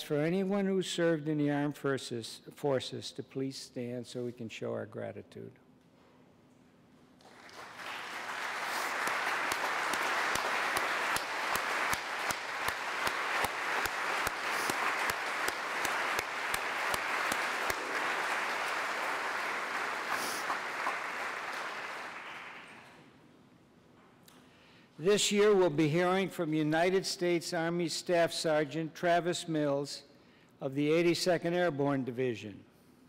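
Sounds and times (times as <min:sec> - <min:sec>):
crowd applauding: 0:07.2 - 0:23.0.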